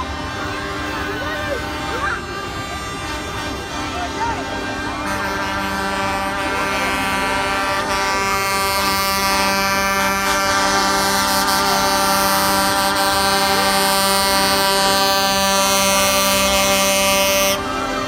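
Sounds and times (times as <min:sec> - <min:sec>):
truck air horns blaring: 0:00.0 - 0:18.0.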